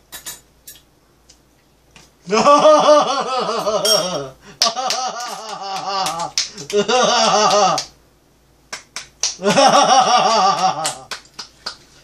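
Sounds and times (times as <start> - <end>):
woman laughing: 2.3 - 7.9, 9.4 - 11.1
hand claps: 4.6 - 8.0, 8.7 - 12.0.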